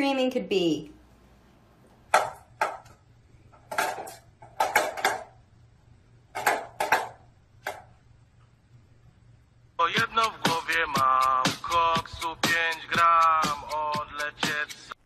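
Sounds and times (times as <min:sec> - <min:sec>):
dish clattering on hard floor: 0:03.6 - 0:05.3, 0:06.4 - 0:07.8.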